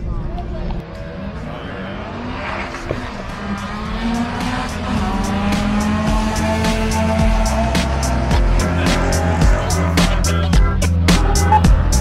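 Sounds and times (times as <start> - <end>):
drag racing car accelerating: 0.8 - 12.0
background music with steady beat: 3.4 - 12.0.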